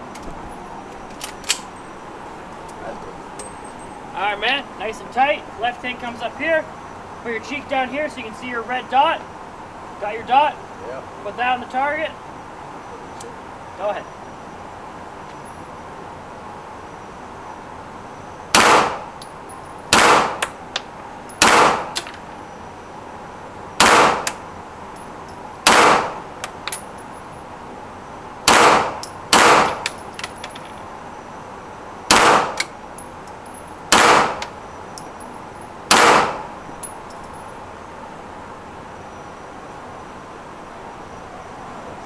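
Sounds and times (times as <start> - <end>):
light metallic clinks: 2.6 - 4.0, 24.9 - 25.4, 29.0 - 30.9, 32.9 - 33.8, 34.9 - 35.8, 36.7 - 37.6.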